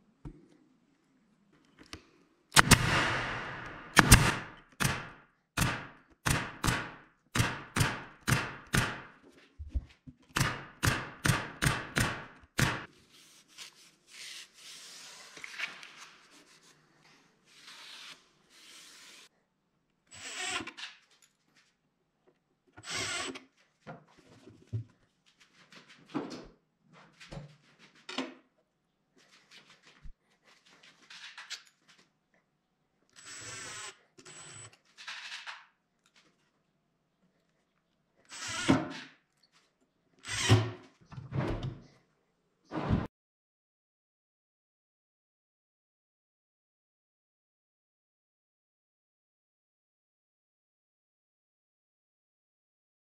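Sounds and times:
nail gun firing: 2.6 - 9.2, 10.3 - 12.9.

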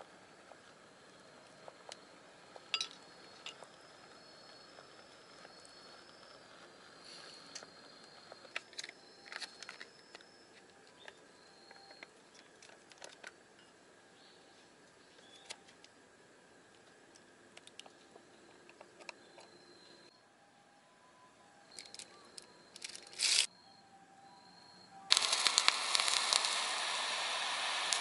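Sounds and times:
thin high tone: 2.7 - 10.6.

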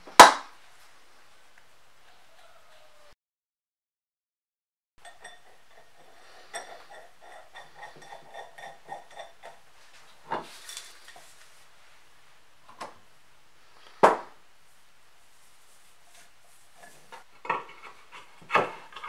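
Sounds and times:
metal rods clinking: 5.0 - 9.6.

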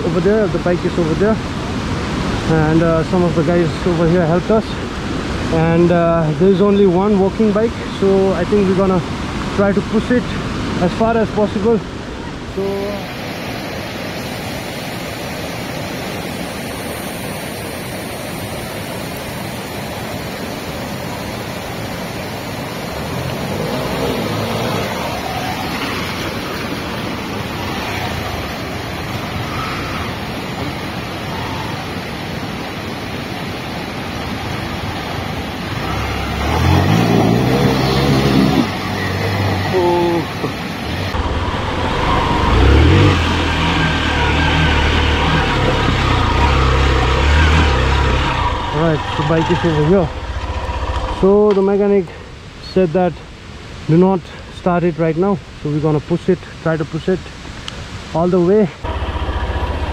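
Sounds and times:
stream rushing over rocks: 0.0 - 59.9
motorcycle engine running: 58.9 - 59.9.

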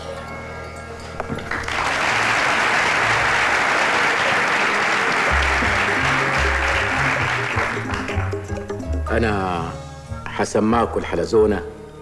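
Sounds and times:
audience applauding: 1.3 - 8.9
background music with bass: 5.3 - 12.0.

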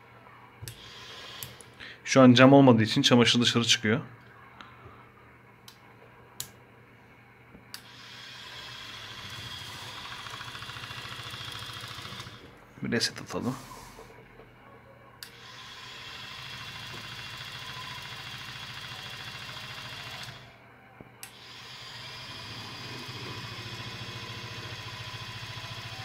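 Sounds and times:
toy motor humming and whining: 7.8 - 12.4, 15.3 - 20.6, 21.2 - 26.0.

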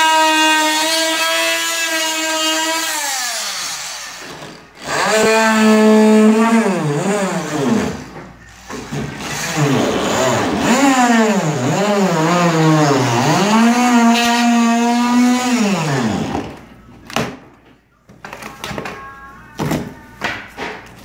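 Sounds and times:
power tool cutting drywall: 0.0 - 16.6.

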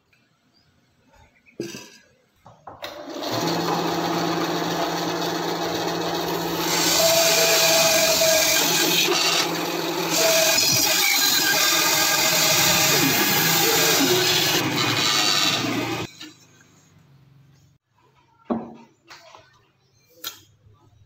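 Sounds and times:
bandsaw motor humming: 3.0 - 16.1.

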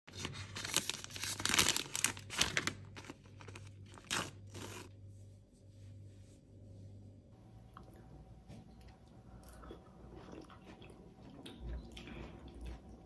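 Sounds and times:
foil sachet crinkling and tearing: 0.1 - 4.9
paper filter bag ripping: 0.1 - 4.9.

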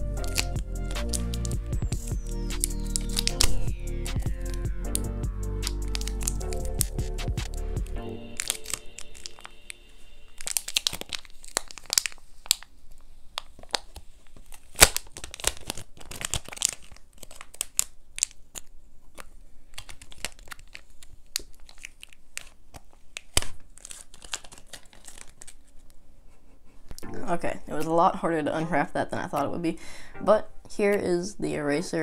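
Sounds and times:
plastic wrapper crinkling and tearing: 0.0 - 5.0, 5.7 - 7.6, 8.3 - 26.0.

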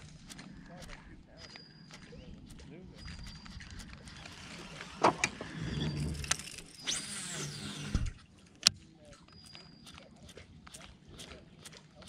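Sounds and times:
sharp clicks: 0.0 - 12.0
fishing reel whirring: 1.6 - 8.2.

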